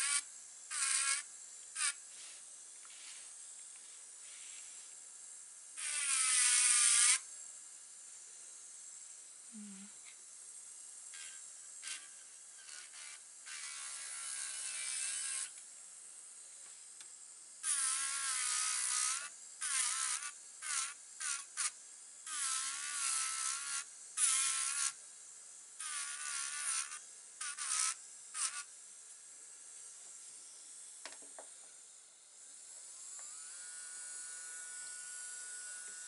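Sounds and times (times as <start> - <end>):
electric nail drill whining: 0.0 - 3.8, 5.7 - 7.3, 11.1 - 15.7, 16.6 - 29.2, 29.8 - 36.0.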